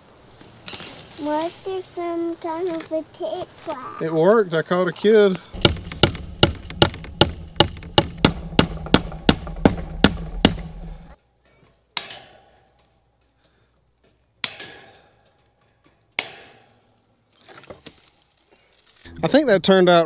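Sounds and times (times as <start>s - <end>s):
sharp knocks: 5.5s - 11.2s
hammer striking wood: 5.6s - 11.2s.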